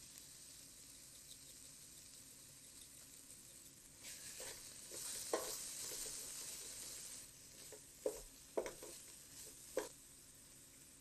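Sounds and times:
vegetables sizzling in a pan: 0:00.0 - 0:11.0
wooden spoon knocking on pan: 0:04.4 - 0:06.3, 0:07.7 - 0:10.0.

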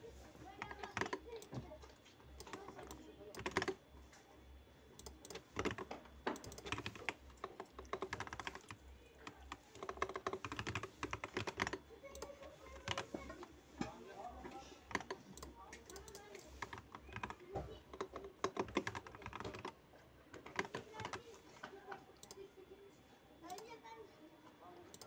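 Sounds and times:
typing on computer keyboard: 0:00.5 - 0:01.6, 0:02.4 - 0:03.8, 0:05.0 - 0:13.2, 0:14.9 - 0:21.3, 0:21.9 - 0:22.4.

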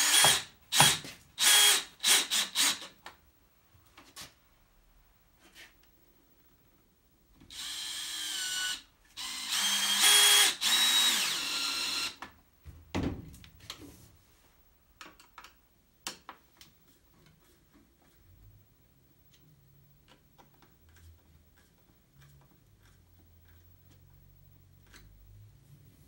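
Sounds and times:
cordless drill whining: 0:00.0 - 0:02.9, 0:07.5 - 0:12.2.

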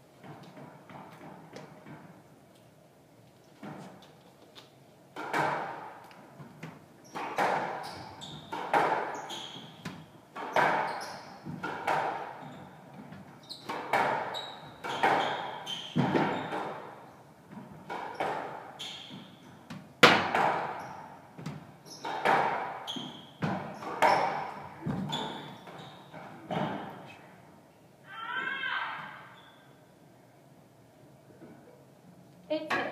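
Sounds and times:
squash ball hitting racquets and walls: 0:05.1 - 0:27.1
shoes squeaking on wooden floor: 0:06.4 - 0:19.9, 0:20.6 - 0:27.1.

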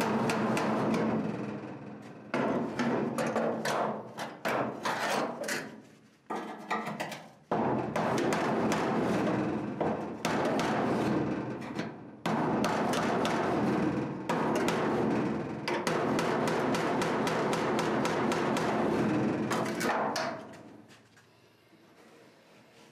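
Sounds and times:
hammer tapping sheet metal: 0:07.5 - 0:20.5
heavy hammer hits on metal: 0:12.2 - 0:20.4.

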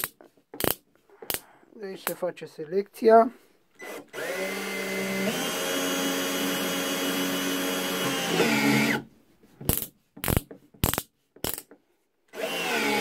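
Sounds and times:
cordless drill running: 0:03.8 - 0:09.1, 0:12.3 - 0:13.0.

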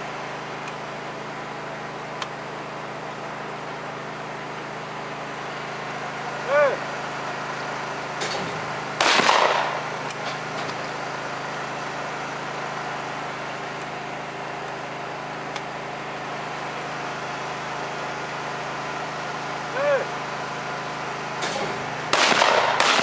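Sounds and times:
steady background hum: 0:00.0 - 0:23.0
shotgun shot with echo: 0:09.0 - 0:09.9, 0:21.4 - 0:23.0.

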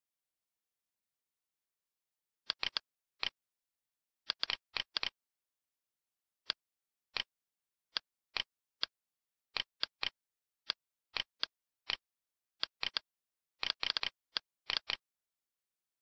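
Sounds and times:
computer mouse clicks: 0:02.5 - 0:03.4, 0:04.3 - 0:05.2, 0:09.6 - 0:12.0, 0:12.6 - 0:13.0, 0:13.6 - 0:15.0.

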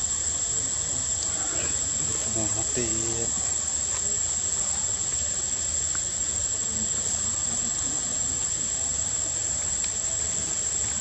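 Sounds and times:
steady outdoor hiss: 0:00.0 - 0:11.0.

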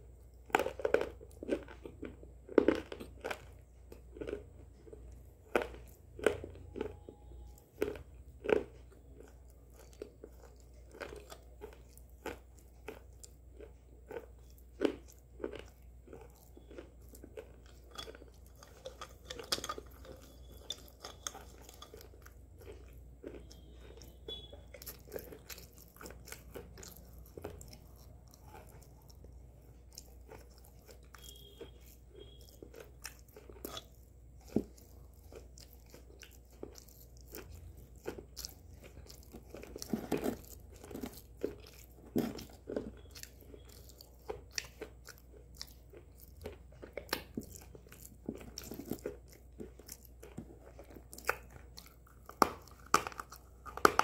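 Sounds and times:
biting and chewing slate pencil: 0:05.0 - 0:54.0.

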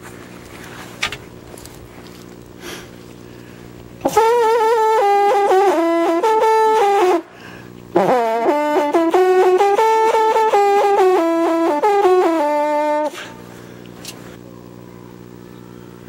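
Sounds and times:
faint low hum: 0:00.0 - 0:16.0
hunting horn fanfare: 0:04.0 - 0:13.4.

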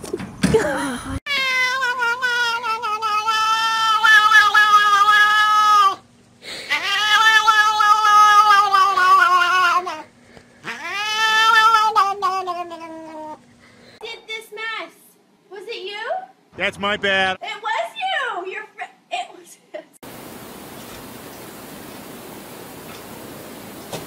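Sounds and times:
cat yowling: 0:01.3 - 0:06.0, 0:06.7 - 0:13.4.

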